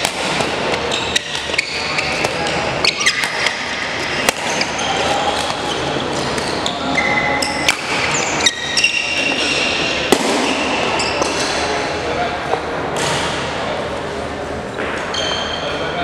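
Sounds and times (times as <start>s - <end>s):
racket striking shuttlecock: 0.0s - 2.5s, 4.2s - 4.6s.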